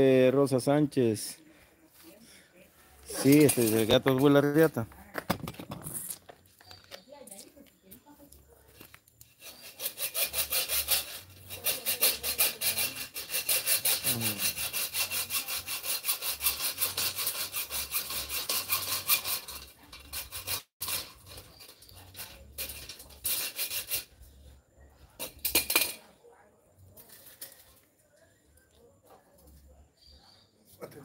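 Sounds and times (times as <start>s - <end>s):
hand saw cutting: 9.2s - 24.1s.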